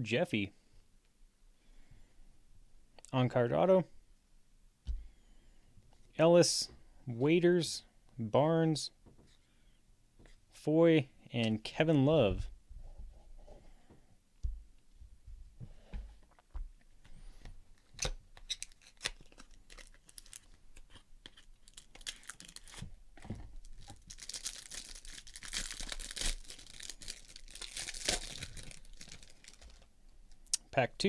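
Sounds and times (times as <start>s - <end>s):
plastic wrapping crinkling: 17.8s - 30.4s.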